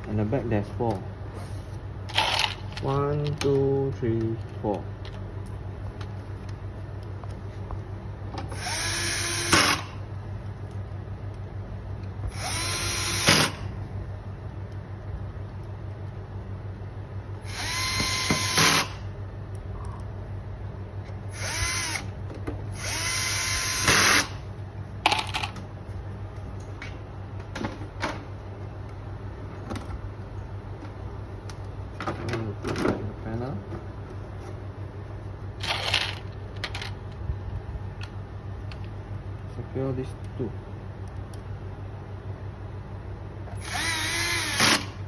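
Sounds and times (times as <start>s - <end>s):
cordless drill motor whine: 8.5s - 10.0s, 12.3s - 13.7s, 17.4s - 19.0s, 21.3s - 24.4s, 43.5s - 45.0s.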